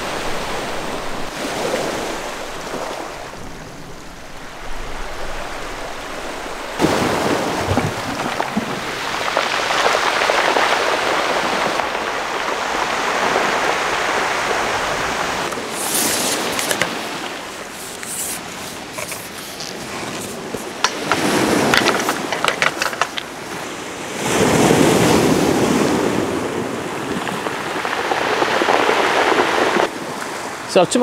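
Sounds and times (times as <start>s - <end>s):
waves washing onto shingle: 0.0s - 31.0s.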